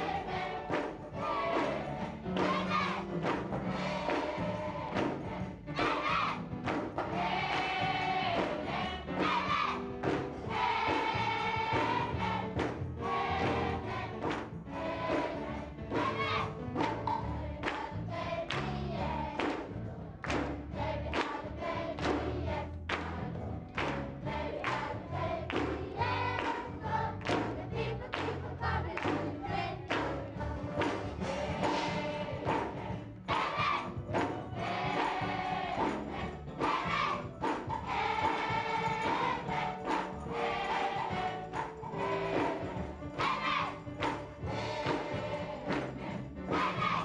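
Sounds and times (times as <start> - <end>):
children's choir singing: 0.0 - 47.0
hand claps: 0.7 - 1.8, 2.4 - 4.3, 6.6 - 7.8, 10.0 - 10.3, 12.6 - 12.9, 14.2 - 14.6, 16.8 - 17.9, 18.5 - 18.8, 19.4 - 21.4, 22.0 - 22.3, 22.9 - 23.2, 23.8 - 24.9, 25.5 - 25.8, 26.4 - 28.4, 29.0 - 30.2, 30.8 - 31.2, 34.2 - 34.4, 37.4 - 38.5, 39.8 - 40.2, 44.0 - 45.1, 45.7 - 45.9.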